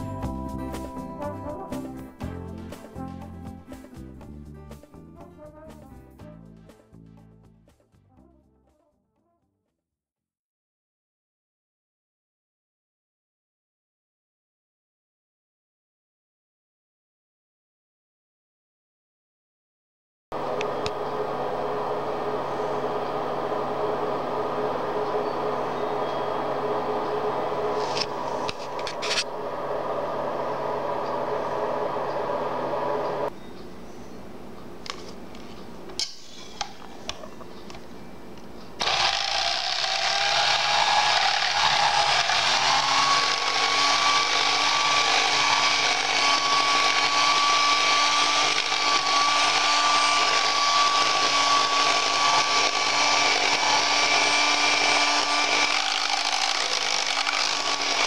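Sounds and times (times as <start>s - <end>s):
electric hand mixer running: 20.4s - 33.3s, 38.8s - 58.0s.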